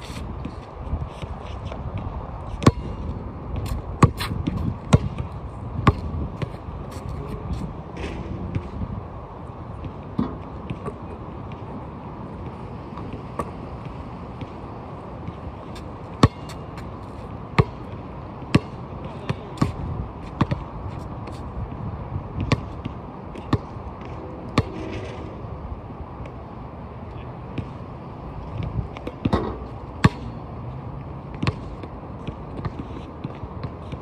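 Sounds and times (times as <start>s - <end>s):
basketball bouncing: 3.6s - 6.5s, 16.2s - 16.9s, 17.6s - 19.8s, 31.4s - 31.7s.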